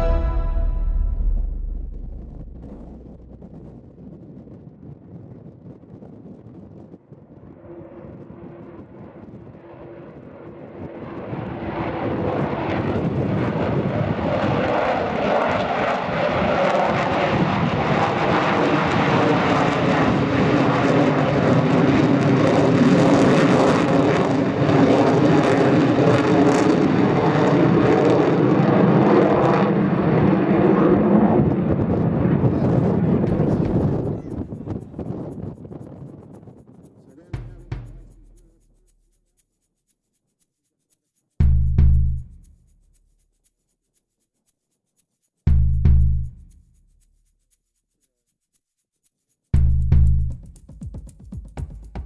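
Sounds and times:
jet bomber passing overhead: 0.0 - 35.2.

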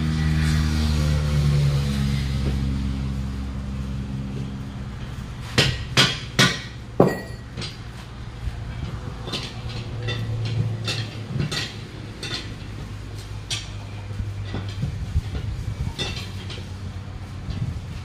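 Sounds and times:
tool striking metal wheel rim: 5.4 - 7.9, 9.2 - 12.8
light metal clinks and taps: 7.0 - 7.8.

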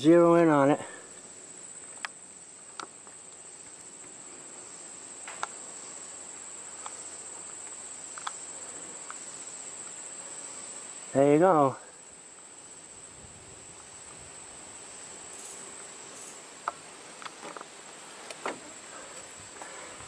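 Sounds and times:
insects trilling: 0.0 - 20.0
sharp clicks: 8.1 - 8.4.

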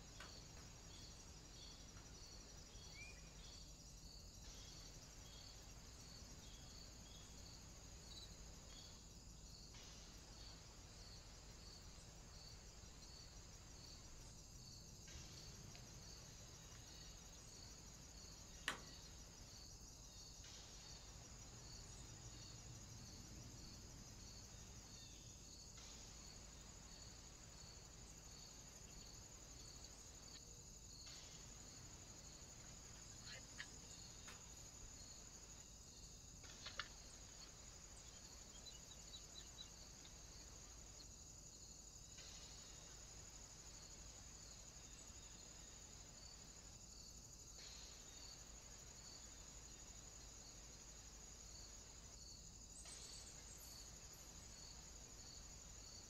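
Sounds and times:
faint crickets chirping: 0.0 - 56.0.

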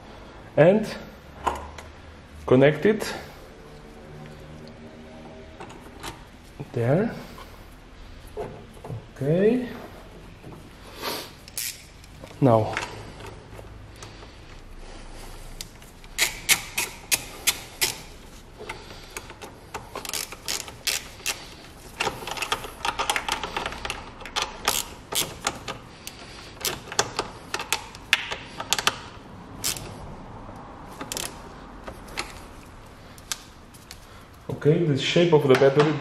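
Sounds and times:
ratchet wrench clicking: 11.5 - 12.3, 16.0 - 18.2, 19.1 - 30.0, 31.0 - 31.4.

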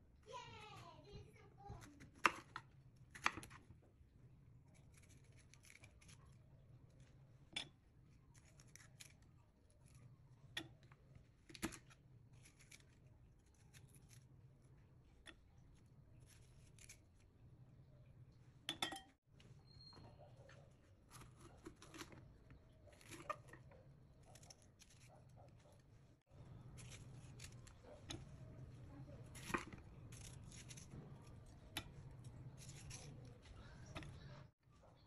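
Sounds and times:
knife slicing pepper: 26.6 - 28.6, 29.2 - 33.4.

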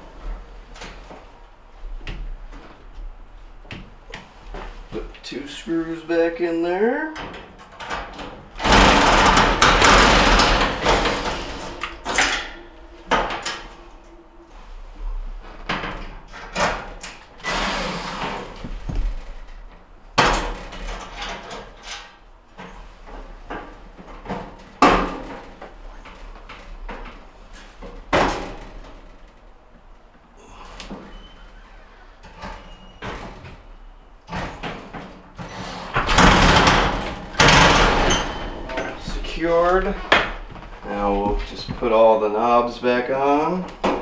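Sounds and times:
sheet metal scraping rattle: 7.8 - 18.6.

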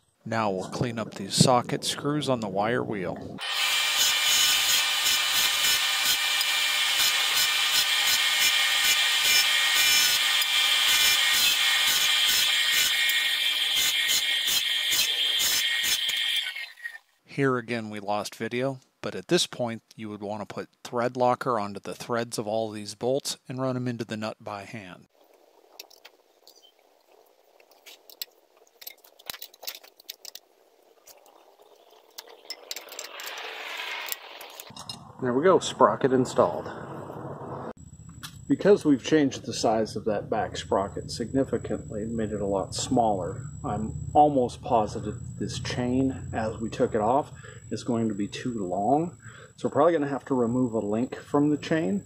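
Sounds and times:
grinder motor humming: 3.4 - 16.4
hiss: 3.4 - 16.9
wire wheel scratching a screw: 3.4 - 17.0, 32.2 - 34.8
wrench clicking and scraping on metal: 32.2 - 35.0.

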